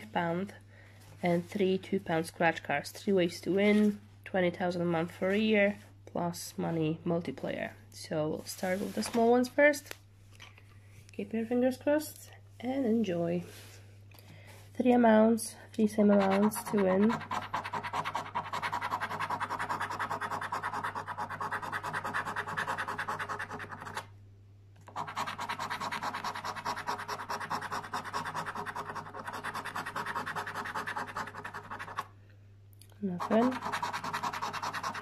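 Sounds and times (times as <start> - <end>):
coin scratching scratchcard: 16.0 - 24.0, 24.9 - 32.1, 33.2 - 35.0.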